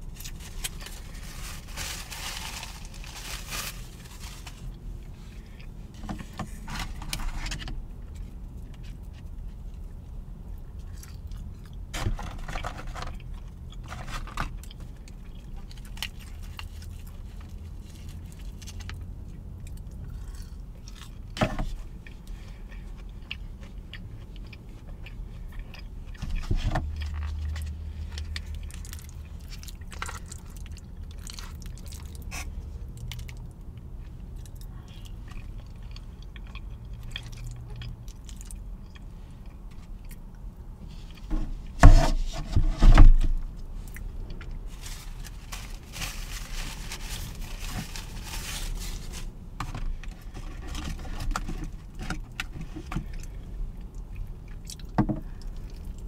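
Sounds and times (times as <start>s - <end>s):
plastic packaging crinkling: 0.1s - 4.8s, 44.7s - 49.4s
person chewing: 19.6s - 21.3s, 21.9s - 41.2s.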